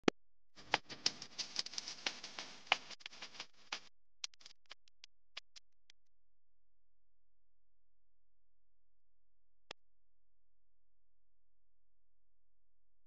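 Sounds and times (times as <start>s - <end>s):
crackling hiss with clicks: 0.6s - 4.7s.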